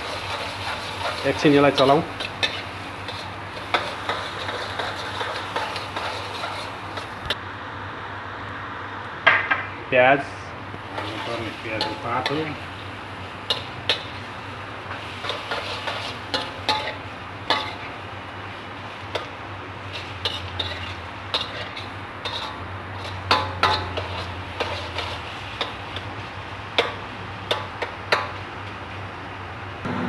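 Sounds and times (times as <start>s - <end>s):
metal spatula scraping a wok: 0.0s - 7.4s, 10.9s - 12.5s, 13.5s - 18.0s, 18.9s - 26.2s.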